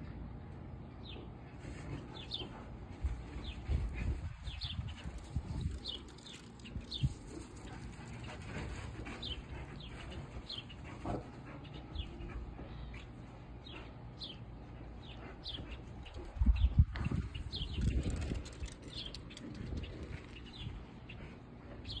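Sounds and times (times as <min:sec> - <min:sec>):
bird chirping: 0:11.5 - 0:22.0.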